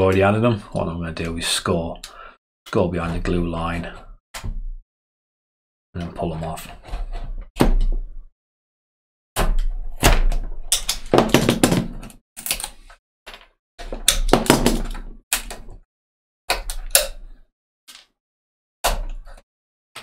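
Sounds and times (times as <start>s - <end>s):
wooden parts knocking and scraping: 9.4s - 15.8s.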